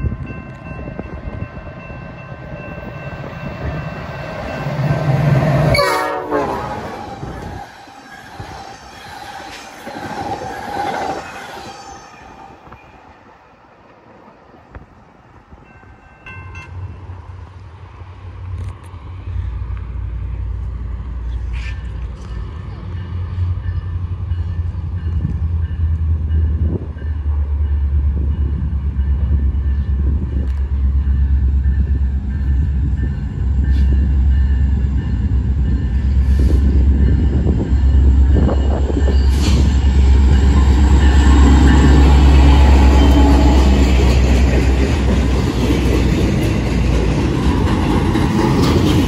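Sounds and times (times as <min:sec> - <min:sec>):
train cars rolling on rails: 0:00.0 - 0:49.0
locomotive rumble: 0:16.8 - 0:49.0.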